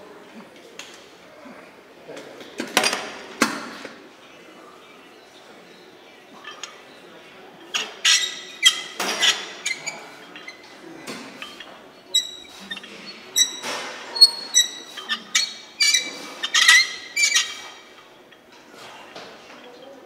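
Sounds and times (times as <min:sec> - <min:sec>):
metal weights clinking: 0:07.7 - 0:17.8.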